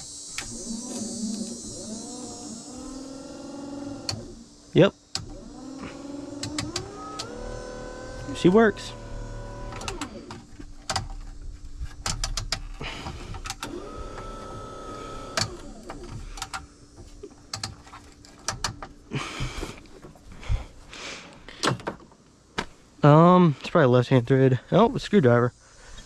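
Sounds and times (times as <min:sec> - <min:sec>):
high motor whine: 0:00.0 - 0:12.0, 0:12.8 - 0:16.4
electric motor hum: 0:00.0 - 0:16.6
sharp clicks and knocks: 0:09.7 - 0:13.7, 0:15.4 - 0:19.0.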